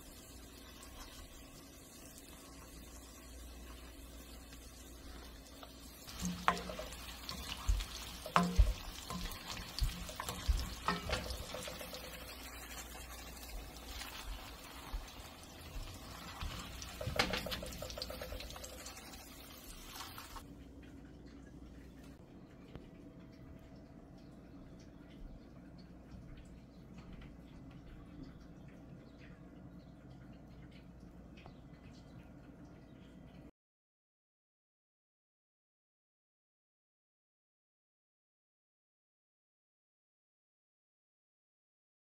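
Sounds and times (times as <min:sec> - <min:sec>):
food frying in hot oil: 0:00.0 - 0:20.6
slotted spoon knocking pan: 0:06.1 - 0:12.1.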